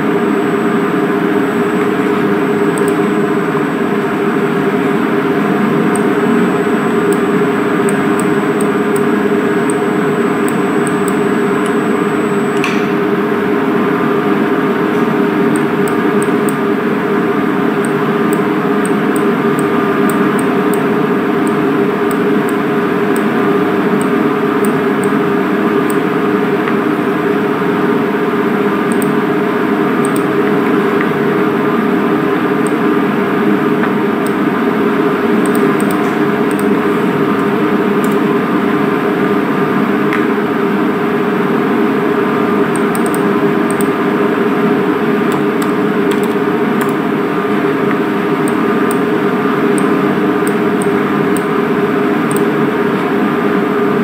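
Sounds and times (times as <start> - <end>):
machine hum: 0.0 - 54.0
thin high whine: 5.7 - 16.7.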